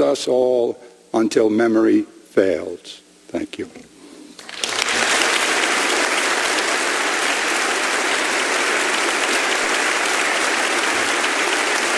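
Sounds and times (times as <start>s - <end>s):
large audience applauding: 4.4s - 11.9s.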